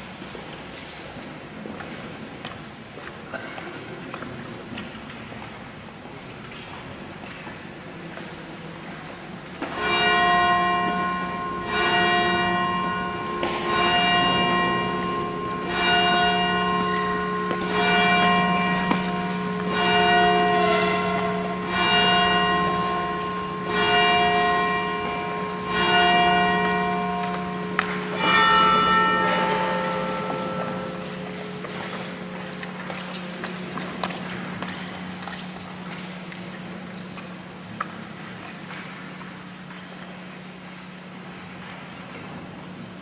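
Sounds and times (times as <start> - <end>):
church bell tolling: 9.6 - 37.6.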